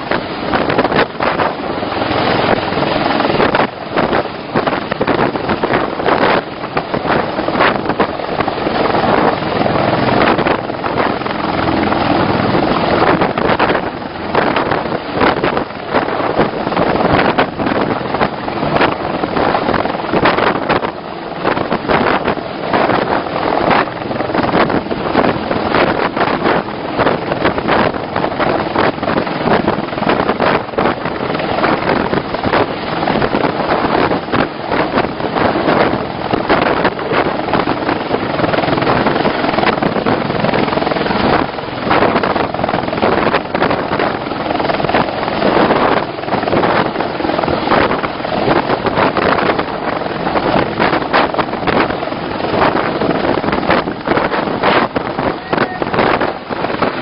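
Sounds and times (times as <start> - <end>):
helicopter rotor and turbine: 0.0 - 57.0
wind buffeting microphone: 0.0 - 57.0.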